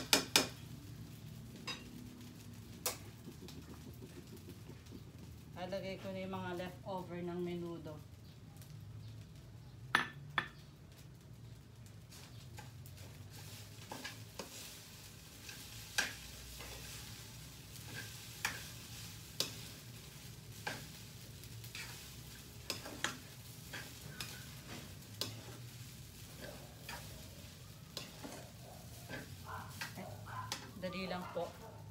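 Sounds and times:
faint sizzle: 0.0 - 31.9
spatula scraping frying pan: 12.1 - 30.7.

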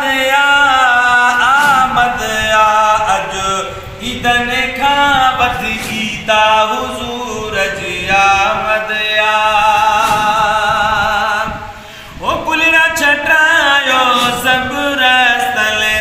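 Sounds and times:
man chanting song: 0.0 - 16.0.

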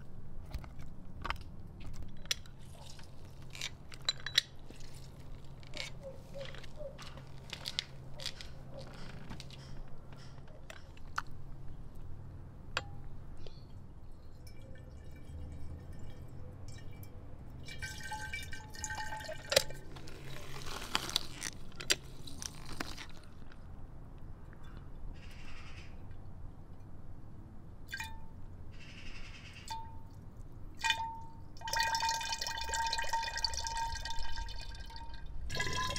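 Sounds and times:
juice dripping into glass bottle: 14.2 - 21.5, 27.9 - 28.4, 30.8 - 35.9.

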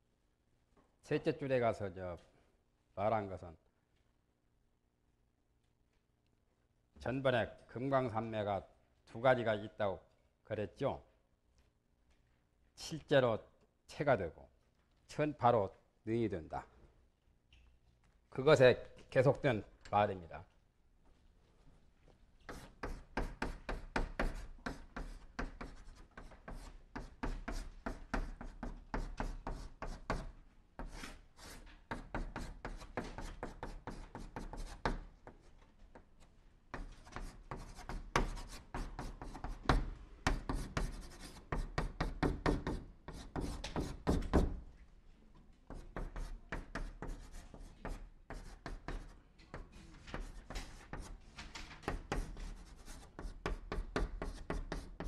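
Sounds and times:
chalk writing on blackboard: 22.4 - 36.1, 36.7 - 44.5, 45.7 - 51.2, 51.9 - 55.0.

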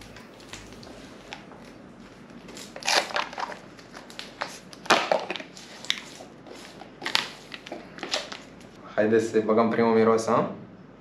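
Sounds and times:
packaging crinkling and tearing: 0.0 - 8.8.

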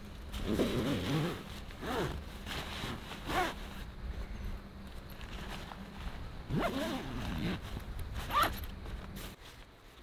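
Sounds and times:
zipper being pulled: 0.4 - 3.8, 6.5 - 8.6.

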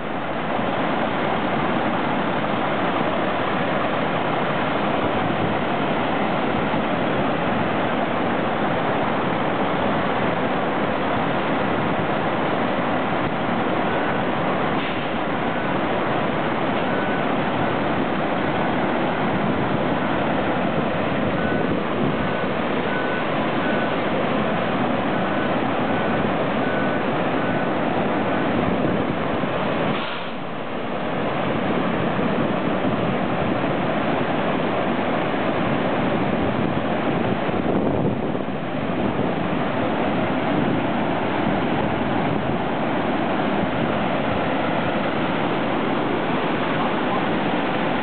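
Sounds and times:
flood water rushing: 0.0 - 48.0
faint high beeps: 22.9 - 24.0.

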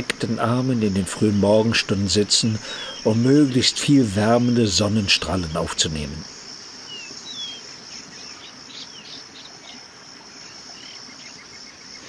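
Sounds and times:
insects droning: 0.0 - 12.0
bird chirps: 6.8 - 9.8.

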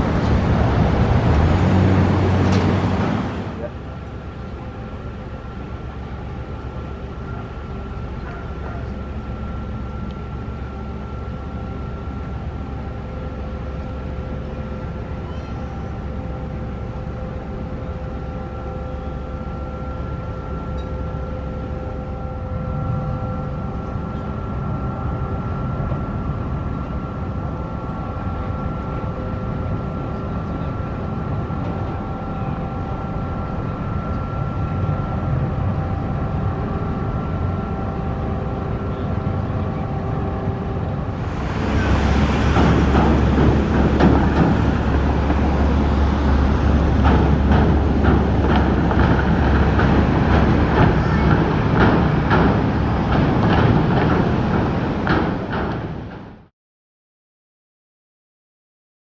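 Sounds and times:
vehicles passing: 0.0 - 4.8, 38.9 - 56.2
ferry engines droning: 0.0 - 56.5.

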